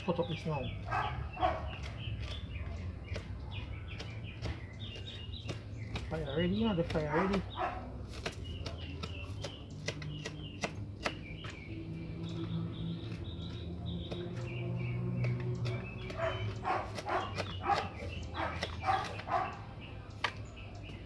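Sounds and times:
birds chirping faintly: 0.0s - 21.0s
dog barking: 0.8s - 1.7s, 7.1s - 7.9s, 16.1s - 19.7s
knife chopping on plastic plate: 3.0s - 11.3s, 15.2s - 19.4s.

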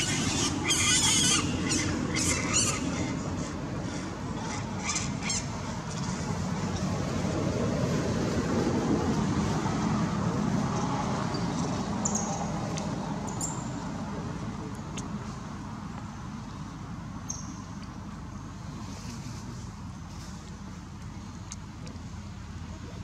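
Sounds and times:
passing road traffic: 0.0s - 23.0s.

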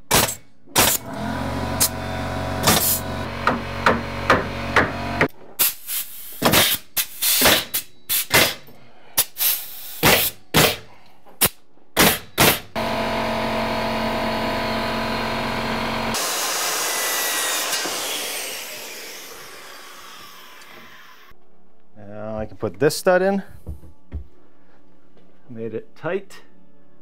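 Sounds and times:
nail gun firing: 0.0s - 1.2s, 2.6s - 5.0s, 6.4s - 8.6s, 10.0s - 10.8s, 12.0s - 12.8s
air hiss: 9.2s - 10.3s
machine hum: 12.7s - 21.8s.

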